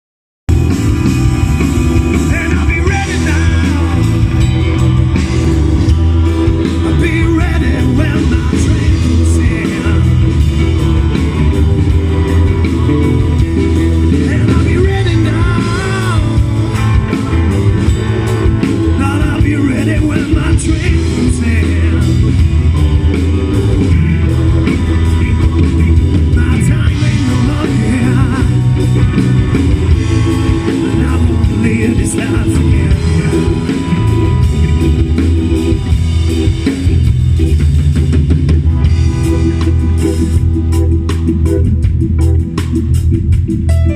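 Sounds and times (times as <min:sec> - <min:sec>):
live rock band playing: 0:00.5 - 0:43.9
man singing: 0:02.0 - 0:04.5, 0:06.5 - 0:10.5, 0:14.0 - 0:16.8, 0:18.6 - 0:22.5, 0:26.2 - 0:29.2, 0:29.9 - 0:34.2.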